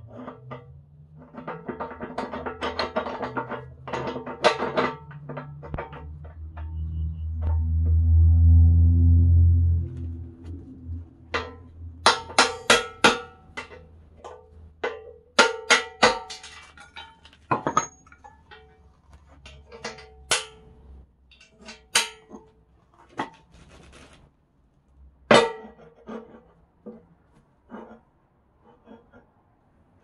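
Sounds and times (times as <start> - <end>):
steel plates clanking: 0.1 - 7.6, 10.5 - 22.4
hammer clanging on steel: 11.3 - 22.5.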